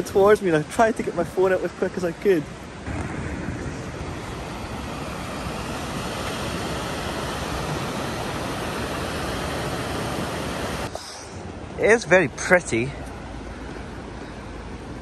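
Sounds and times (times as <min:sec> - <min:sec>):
low-flying jet aircraft roaring: 0:02.9 - 0:10.9.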